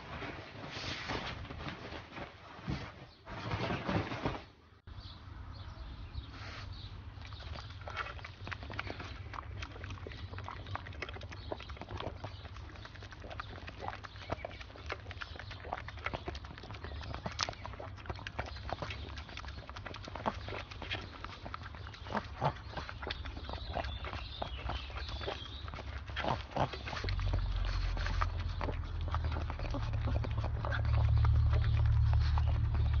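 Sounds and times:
dog licking wet lapping: 7.2s - 33.0s.

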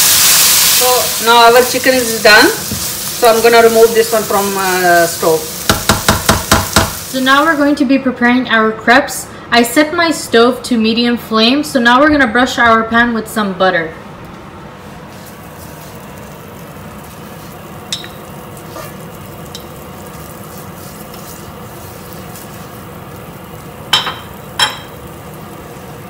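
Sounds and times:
butter sizzling in a frying pan: 0.0s - 7.8s, 15.2s - 26.0s.

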